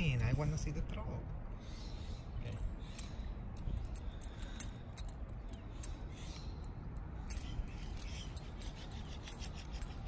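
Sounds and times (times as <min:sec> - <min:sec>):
keys ticking and jingling: 0:02.5 - 0:10.0.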